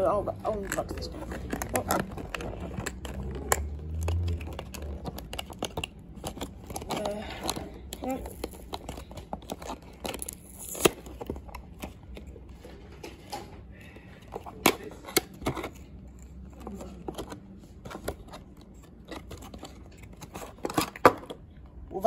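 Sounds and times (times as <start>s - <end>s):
packaging rustling and crinkling: 0.0s - 13.5s.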